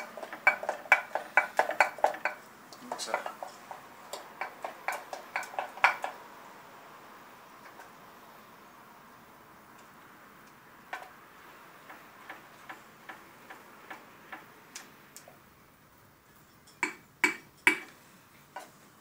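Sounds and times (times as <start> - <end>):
wooden spoon knocking glass jug: 0.0 - 2.4.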